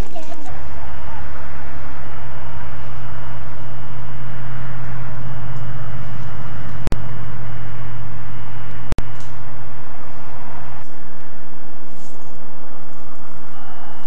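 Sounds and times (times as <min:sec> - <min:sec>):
low hum and hiss: 0:00.0 - 0:14.0.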